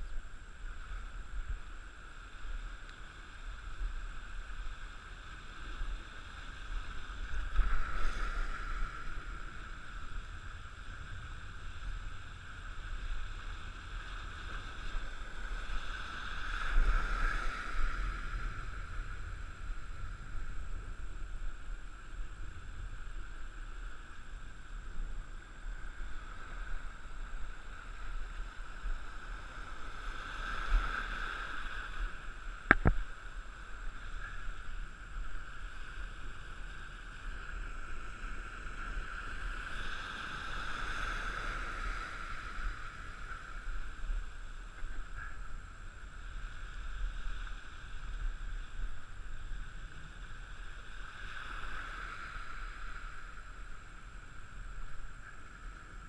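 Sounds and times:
wind rumbling on microphone: 0.0 - 56.0.

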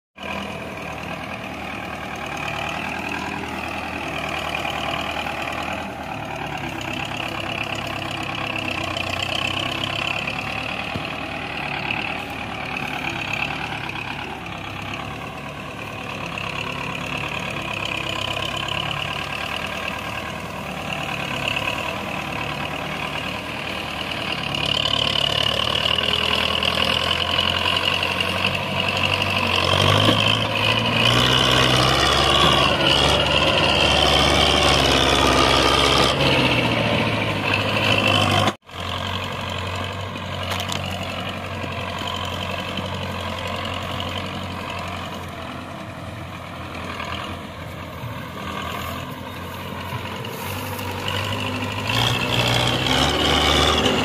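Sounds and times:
diesel tractor engine running: 0.2 - 54.0.

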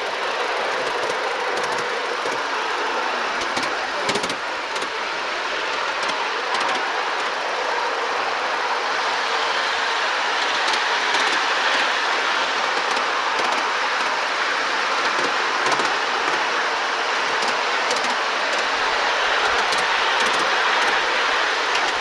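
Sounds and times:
miniature train running on track: 0.0 - 22.0.

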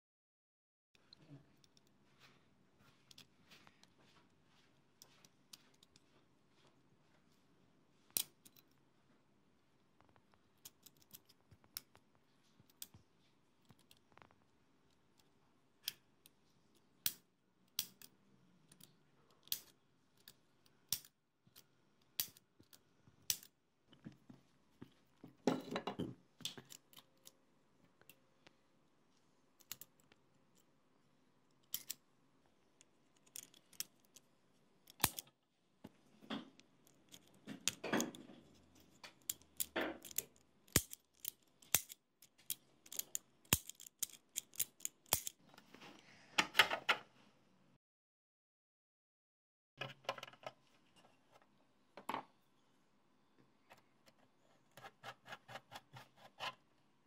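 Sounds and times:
plastic switch parts clicking: 39.1 - 45.4.

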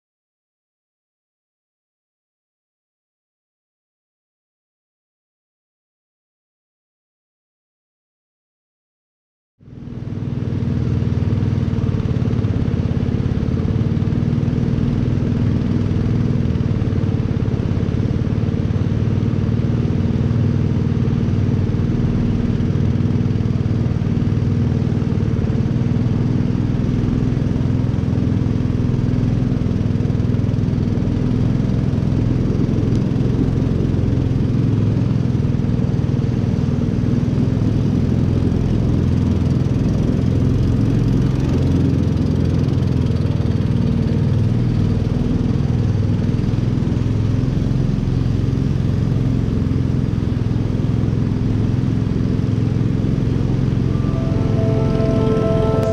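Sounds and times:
motor boat engine droning: 50.1 - 55.9.

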